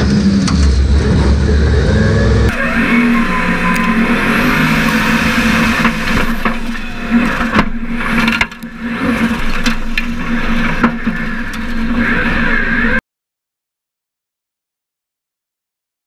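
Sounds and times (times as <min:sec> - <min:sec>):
buggy engine running: 0:00.0 - 0:13.0
chassis knocks and dirt strikes: 0:03.7 - 0:12.0.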